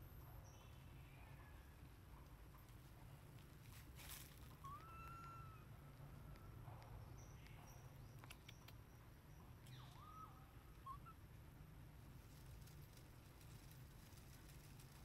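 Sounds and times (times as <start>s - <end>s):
faint outdoor ambience: 0.0s - 15.0s
faint whistled calls: 4.6s - 5.7s, 7.2s - 11.3s.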